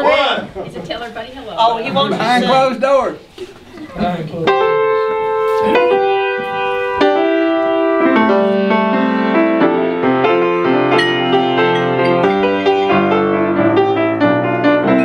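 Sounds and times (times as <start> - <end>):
piano bass notes: 4.4 - 15.0
piano chords: 4.4 - 15.0.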